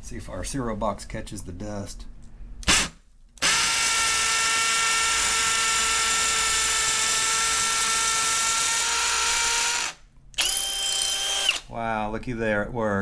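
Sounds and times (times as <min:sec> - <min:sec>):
cordless drill boring into concrete: 0:02.7 - 0:11.7.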